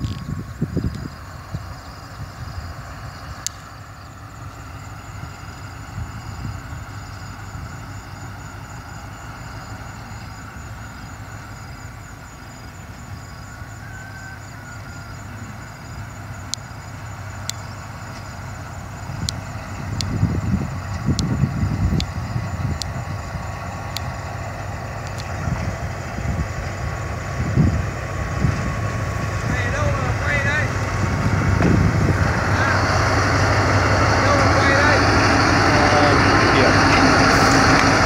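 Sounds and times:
locomotive engine rumbling: 0.0s - 38.0s
sharp clicks: 25.0s - 25.4s.

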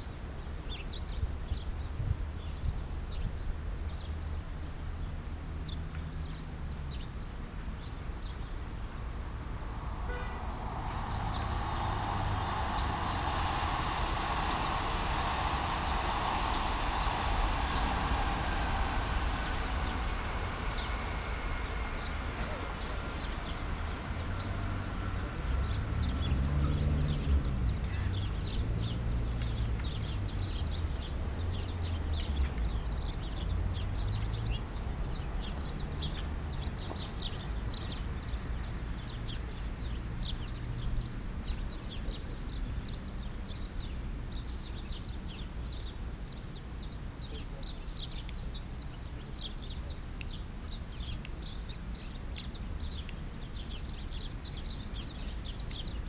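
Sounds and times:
low rumble: 8.6s - 34.1s
small birds chirping: 25.5s - 56.0s.

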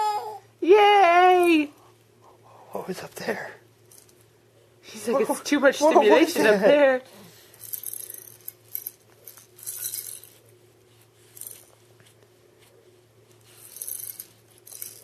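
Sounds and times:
baby rattle shaken: 7.4s - 10.5s, 11.2s - 11.9s, 13.4s - 15.0s.

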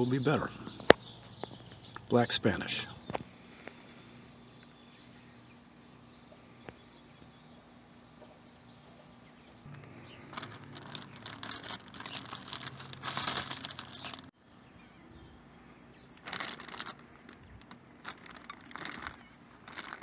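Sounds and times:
plastic bag crinkling: 9.7s - 14.3s, 16.2s - 20.0s.

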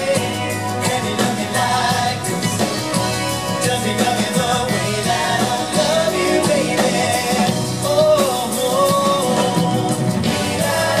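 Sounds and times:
drum kit: 0.0s - 11.0s
male vocal group singing: 0.0s - 11.0s
pop band playing: 0.0s - 11.0s.

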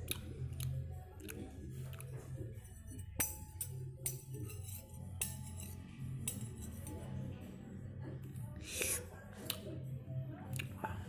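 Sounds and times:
background music: 0.0s - 11.0s
spoon clinking against bowl: 2.8s - 7.0s.

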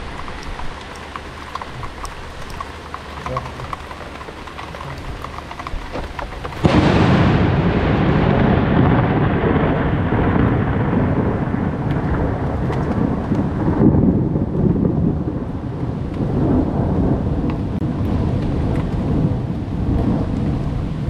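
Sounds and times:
rain: 0.0s - 21.0s
thunderclap and low rumble: 0.0s - 21.0s.

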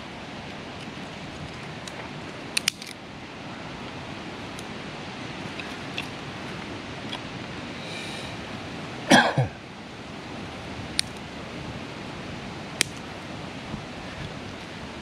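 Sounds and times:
steady outdoor hiss: 0.0s - 15.0s
dry twigs snapping: 1.8s - 3.0s, 12.8s - 13.1s
man coughing: 9.1s - 9.6s.

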